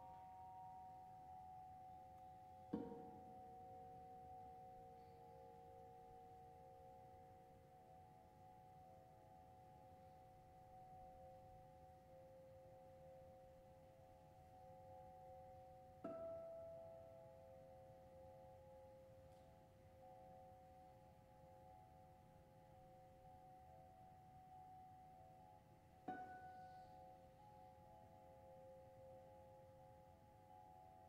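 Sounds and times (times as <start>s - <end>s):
soft vibraphone notes: 8.5s - 31.0s.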